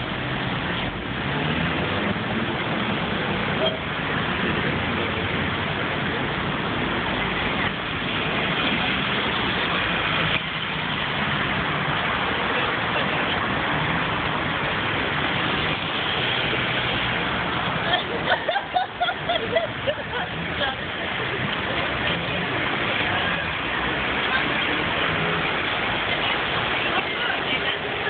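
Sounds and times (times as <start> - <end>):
road noise: 0.0 - 28.0
vehicles running and idling: 0.0 - 28.0.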